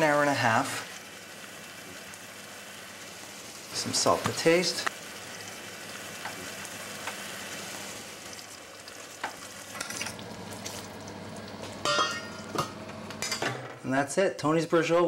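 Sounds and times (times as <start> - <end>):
sauce sizzling and bubbling: 0.0 - 13.3
metal pot lid clanking: 11.8 - 13.8.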